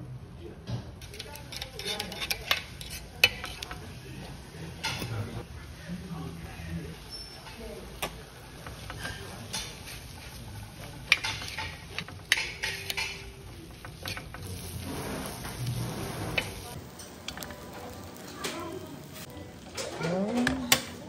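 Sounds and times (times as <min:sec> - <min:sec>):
metal spatulas on griddle: 0:01.0 - 0:05.3, 0:07.0 - 0:21.0.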